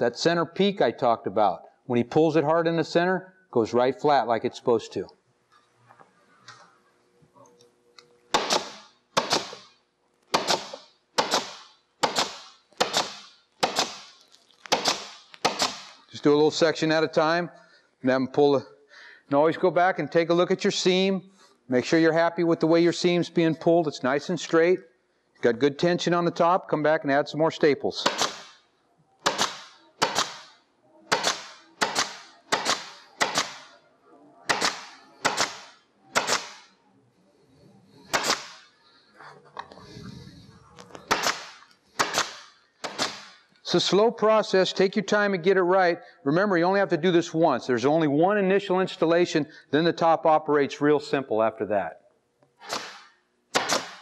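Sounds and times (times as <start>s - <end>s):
pneumatic staple gun firing: 8.3s - 9.7s, 10.3s - 16.0s, 28.1s - 28.6s, 29.2s - 33.7s, 34.5s - 36.7s, 38.1s - 38.6s, 41.1s - 43.4s, 52.6s - 54.0s.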